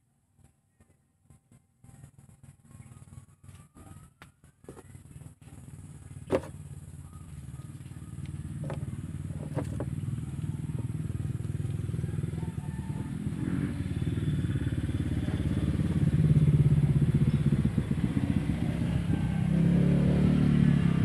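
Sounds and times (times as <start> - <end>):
low steady engine: 0.0 - 21.0.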